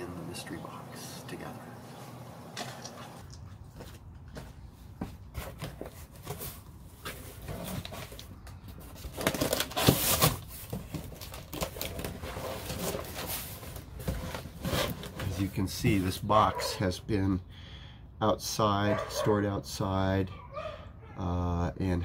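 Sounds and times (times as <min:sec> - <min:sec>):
cardboard box scraping and rustling: 0:05.3 - 0:16.2.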